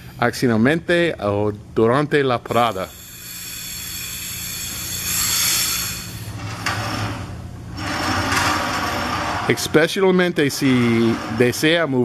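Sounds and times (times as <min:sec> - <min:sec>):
steady low hum: 0:00.0 - 0:12.0
compressed air hissing: 0:02.5 - 0:06.4.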